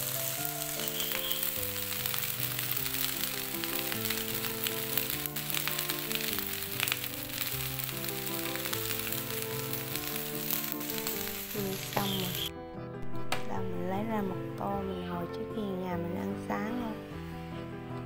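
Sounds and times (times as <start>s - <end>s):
rice sizzling in a frying pan: 0.0s - 12.5s
slow background music: 0.0s - 18.0s.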